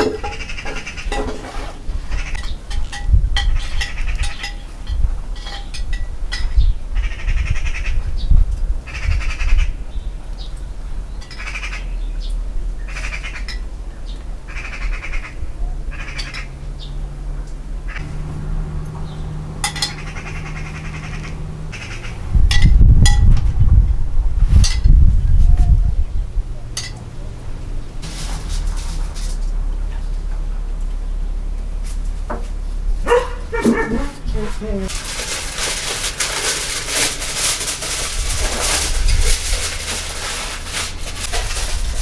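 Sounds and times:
loud low rumble: 0:11.9 - 0:34.9
aluminium foil crinkling: 0:28.0 - 0:29.6, 0:33.9 - 0:42.0.

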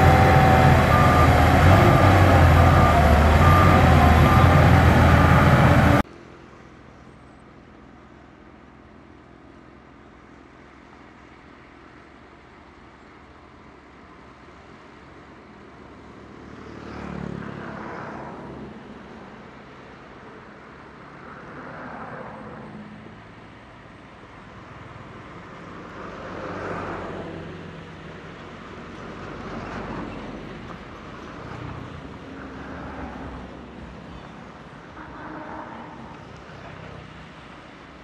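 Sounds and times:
bulldozer diesel engine running: 0:00.0 - 0:06.0.

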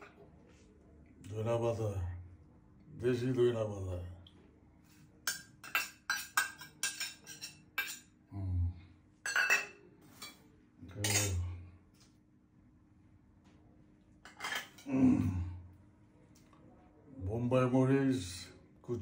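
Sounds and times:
steel bowls and utensils clinking: 0:05.2 - 0:08.1, 0:09.2 - 0:11.4, 0:14.2 - 0:14.9.

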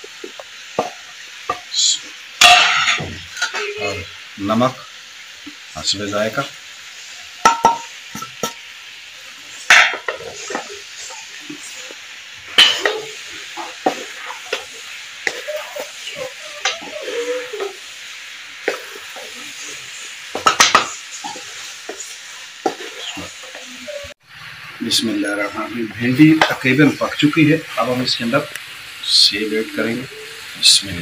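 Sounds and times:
vegetables sizzling in a wok: 0:00.0 - 0:31.0
spatula scraping a pan: 0:02.4 - 0:03.8, 0:09.5 - 0:24.2.

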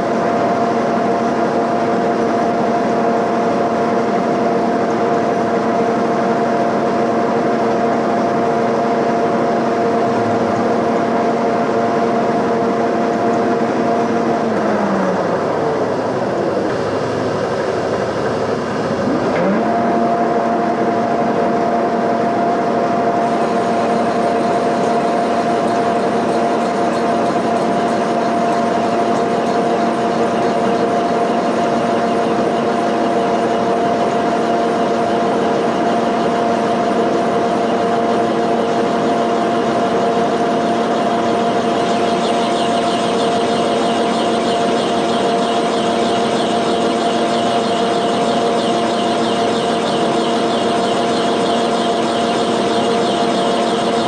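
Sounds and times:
milling machine spindle whine: 0:00.0 - 0:54.0.

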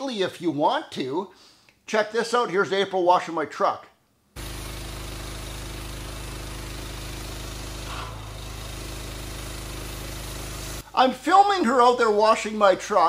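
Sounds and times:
engine running: 0:04.4 - 0:10.8
water jet hissing: 0:04.4 - 0:11.0.

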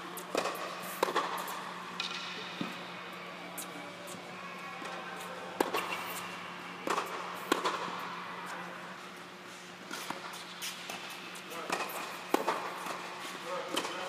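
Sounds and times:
steady low hum: 0:00.0 - 0:14.0
racket hitting tennis ball: 0:00.2 - 0:02.8, 0:05.6 - 0:08.1, 0:09.9 - 0:14.0
tennis ball bouncing: 0:00.2 - 0:02.8, 0:05.6 - 0:06.2, 0:06.8 - 0:08.0, 0:11.7 - 0:13.1.

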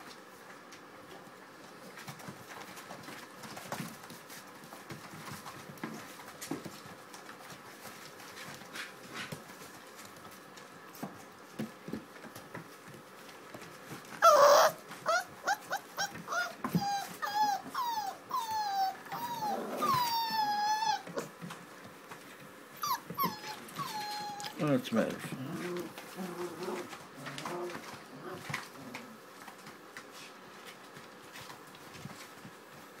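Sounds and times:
paws scuffling and clicking: 0:00.1 - 0:33.0
puppy yelping and yipping: 0:14.2 - 0:21.3, 0:22.8 - 0:24.6
puppy whimpering: 0:14.2 - 0:21.4, 0:22.8 - 0:24.6, 0:25.4 - 0:29.0.

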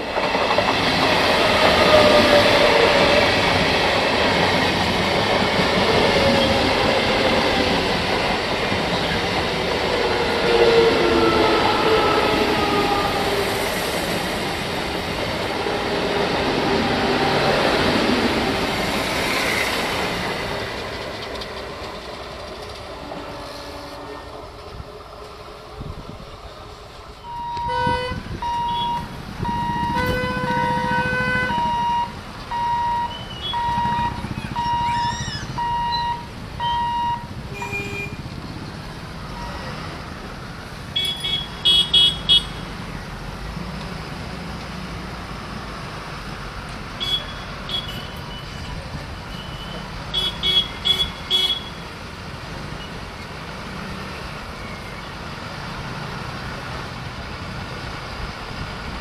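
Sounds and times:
motorbikes and trucks honking: 0:27.6 - 0:29.0, 0:29.7 - 0:31.7, 0:37.5 - 0:38.3, 0:41.0 - 0:42.6, 0:47.0 - 0:48.5, 0:49.4 - 0:51.8
short high horn beeps: 0:32.6 - 0:38.2.

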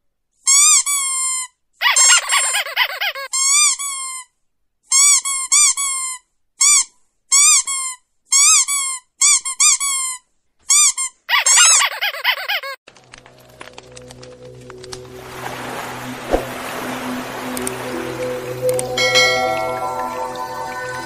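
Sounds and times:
dog whining: 0:11.3 - 0:12.8.

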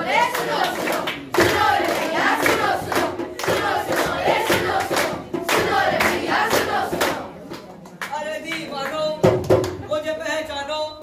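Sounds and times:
children chanting in unison: 0:00.0 - 0:07.3
children clapping: 0:00.0 - 0:09.9.

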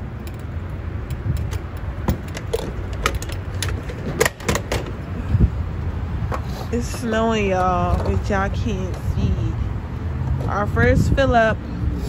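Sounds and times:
steady low rumble: 0:00.0 - 0:12.0
fuel nozzle clicking and clunking: 0:00.2 - 0:05.1.

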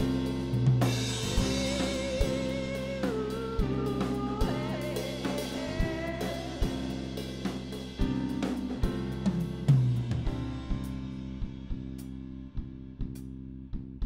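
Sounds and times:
drum kit with cymbal: 0:00.0 - 0:12.4.

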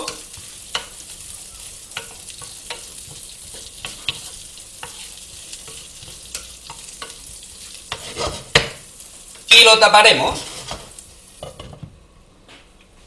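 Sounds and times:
asparagus sizzling in butter: 0:00.0 - 0:11.9
wooden spoon knocking and scraping pan: 0:01.9 - 0:08.9, 0:10.3 - 0:12.0.

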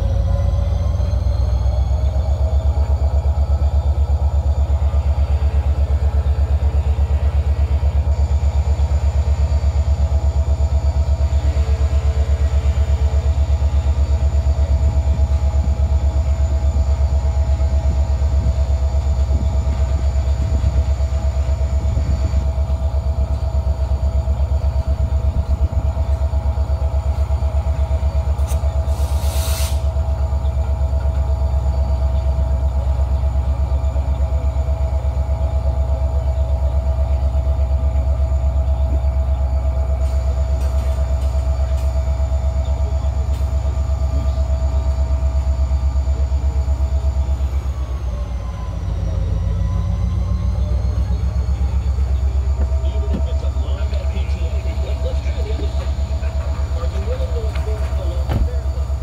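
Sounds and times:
freight train rumble: 0:00.0 - 0:59.0
steady whine: 0:00.0 - 0:59.0
short hiss: 0:28.5 - 0:29.9.

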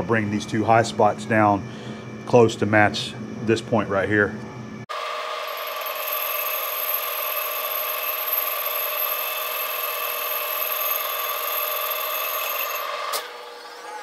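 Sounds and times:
lathe running: 0:04.9 - 0:14.0
lathe tool cutting metal whine: 0:04.9 - 0:14.0.

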